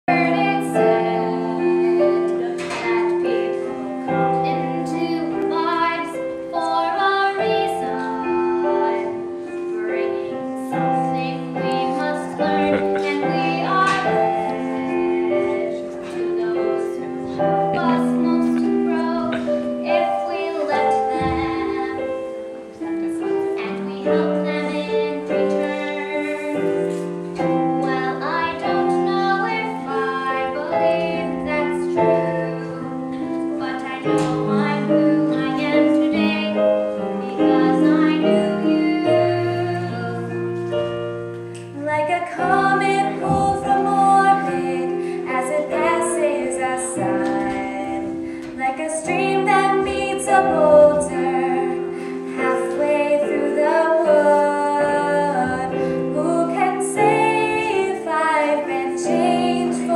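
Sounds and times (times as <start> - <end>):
piano accompaniment: 0.0 - 59.9
girl singing: 0.1 - 40.8, 41.6 - 59.9.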